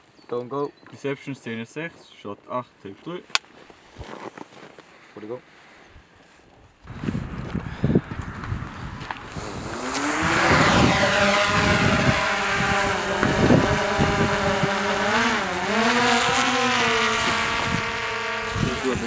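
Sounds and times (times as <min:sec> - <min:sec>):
car engine revving: 0:06.9 - 0:19.0.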